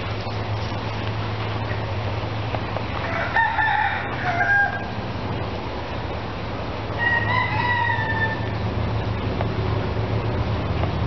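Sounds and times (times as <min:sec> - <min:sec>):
steady low hum: 0:00.0 - 0:11.0
rooster crowing: 0:03.0 - 0:05.0, 0:07.0 - 0:08.6.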